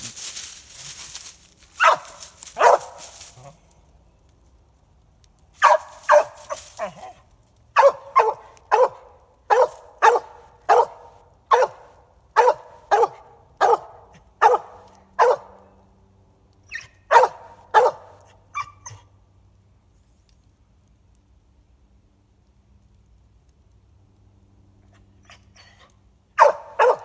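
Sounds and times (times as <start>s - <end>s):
dog barking: 1.8s - 3.0s, 5.6s - 7.2s, 7.8s - 15.6s, 17.1s - 18.7s, 26.4s - 27.0s.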